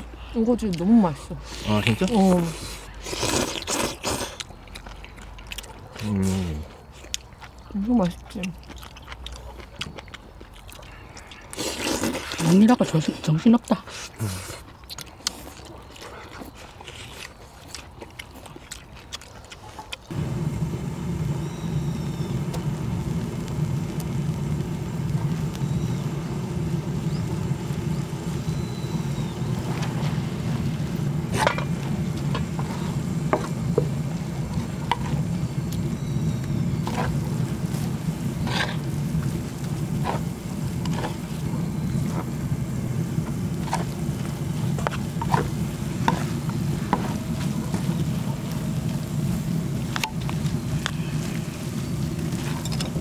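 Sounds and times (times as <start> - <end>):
frying sizzle: 20.1 - 53.0
low rumble: 20.1 - 53.0
spatulas scraping on griddle: 36.8 - 39.3.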